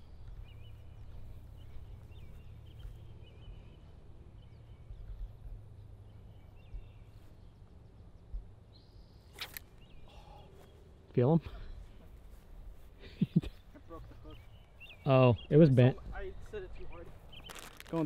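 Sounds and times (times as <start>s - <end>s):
small bird chirps: 0.0s - 10.8s, 17.2s - 18.0s
soft low thumps: 4.6s - 7.2s.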